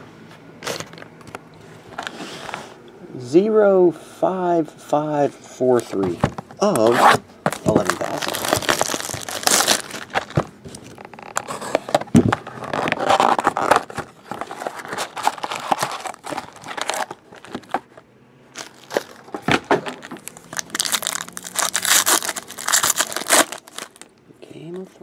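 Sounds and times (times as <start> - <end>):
paper and foil wrappers crinkling: 7.5 - 18.0, 18.6 - 24.1.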